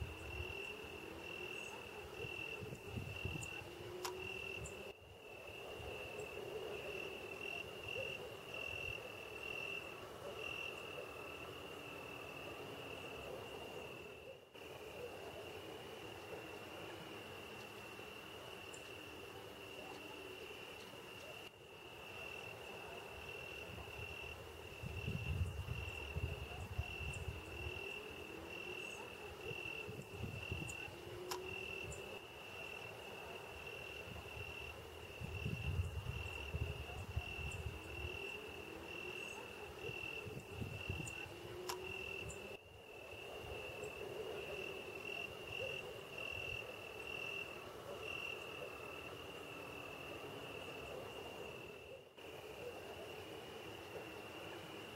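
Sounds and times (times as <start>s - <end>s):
cricket chirping: 0.0s - 54.9s.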